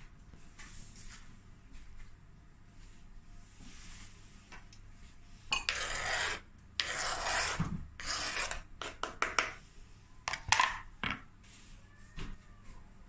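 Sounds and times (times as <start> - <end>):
knife scraping plastic chopping board: 5.6 - 9.2.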